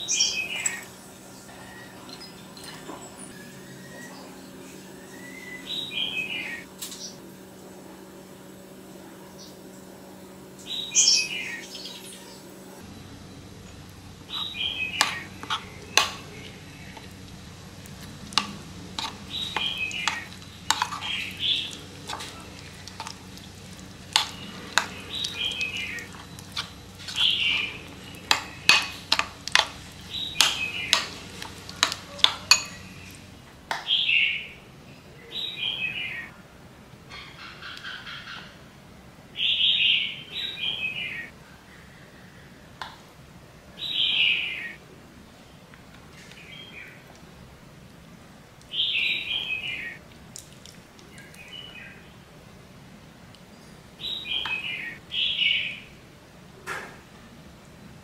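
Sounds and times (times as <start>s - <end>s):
small bird chirping: 10.6s - 12.4s, 14.3s - 17.1s, 19.0s - 33.2s
metal spoon scraping ceramic bowl: 18.4s - 21.3s, 30.4s - 33.1s.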